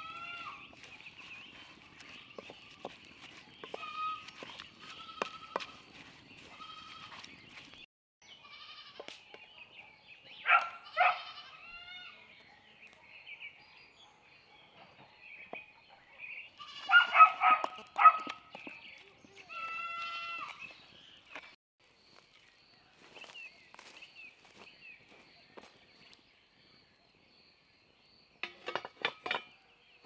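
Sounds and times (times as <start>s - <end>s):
wooden spoon stirring in bowl: 0.0s - 7.9s.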